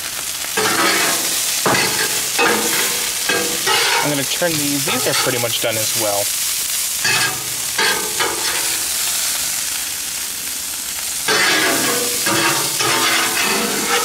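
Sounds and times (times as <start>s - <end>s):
steaks sizzling on a griddle: 0.0s - 14.0s
metal spatula scraping griddle: 0.6s - 5.6s, 7.0s - 9.0s, 11.3s - 14.0s.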